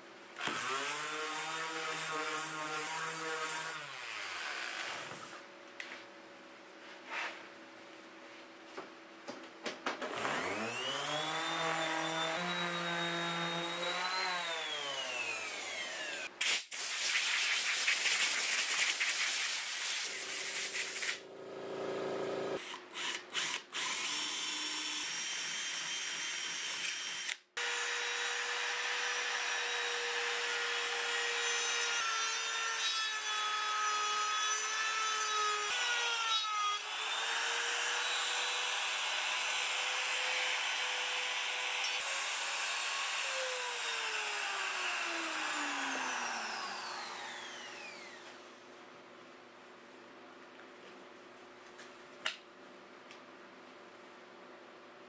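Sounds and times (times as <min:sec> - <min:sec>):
router high whine: 0:10.2 - 0:16.3, 0:41.7 - 0:48.3.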